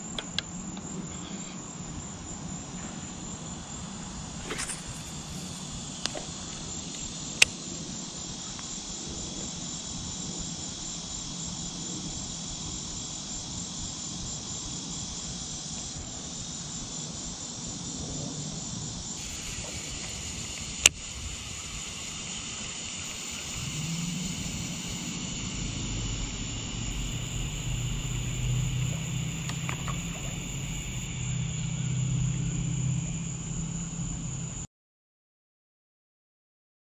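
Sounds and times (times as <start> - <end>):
insect chorus chirring: 0.0 - 34.7
low drone: 18.0 - 34.6
sharp clicks: 19.2 - 21.7, 27.0 - 31.0.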